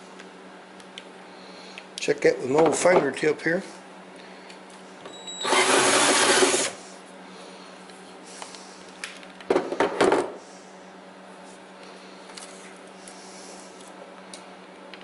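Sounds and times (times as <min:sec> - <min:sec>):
cordless drill cutting plastic: 0:05.4 - 0:06.8.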